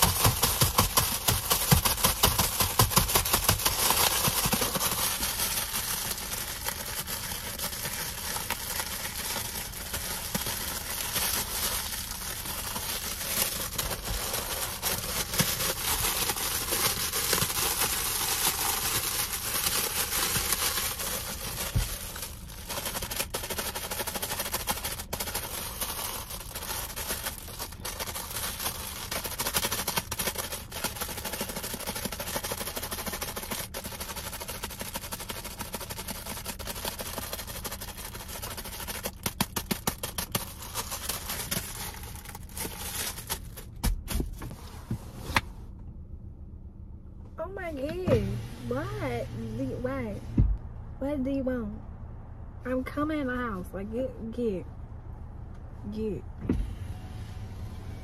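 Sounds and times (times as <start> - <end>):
plastic package crinkling: 0.0 - 43.8.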